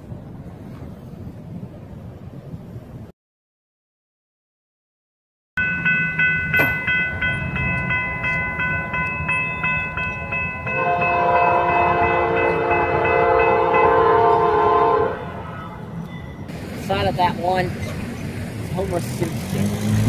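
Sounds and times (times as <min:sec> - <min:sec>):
railroad crossing bell ringing: 0:05.6 - 0:17.9
train horn blowing: 0:10.7 - 0:16.0.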